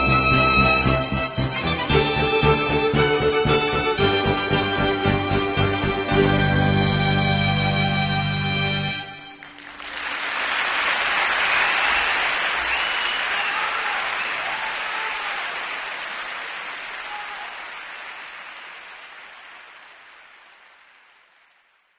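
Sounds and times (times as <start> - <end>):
background music: 0.0 - 10.5
crowd applause: 9.1 - 21.9.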